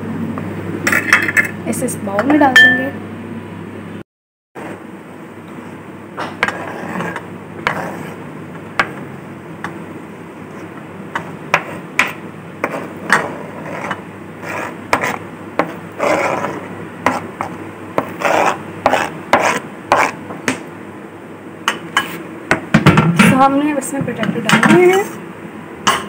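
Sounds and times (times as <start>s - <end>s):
utensil scraping a cutting board: 6.4s - 8.2s, 12.6s - 20.2s.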